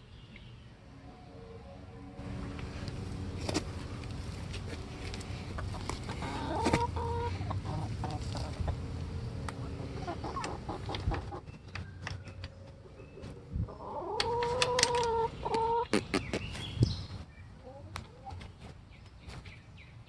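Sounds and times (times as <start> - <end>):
hens calling: 4.8 - 11.5, 12.8 - 16.6.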